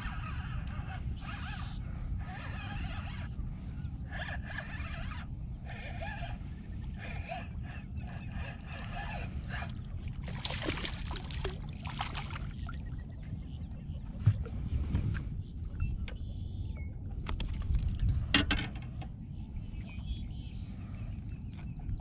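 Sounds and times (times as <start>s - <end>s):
fishing reel whirring: 0.0s - 3.4s, 4.0s - 9.9s
fish splashing in water: 10.2s - 12.9s.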